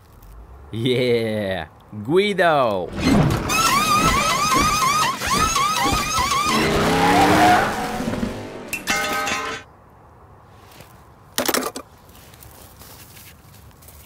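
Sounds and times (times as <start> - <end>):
race car engine and tyre noise: 3.0 - 9.6.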